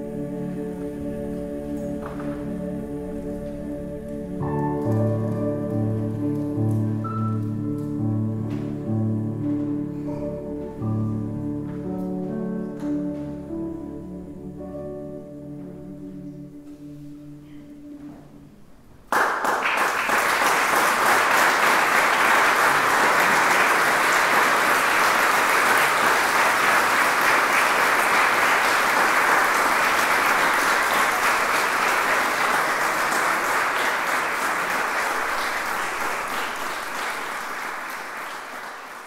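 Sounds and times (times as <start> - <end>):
audience applause: 19.1 - 39.0.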